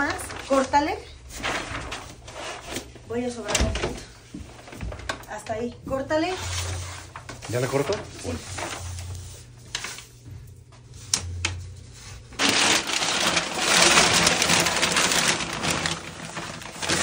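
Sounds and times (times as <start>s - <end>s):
paper crinkling and rustling: 0.0s - 5.6s, 6.2s - 10.2s, 10.8s - 17.0s.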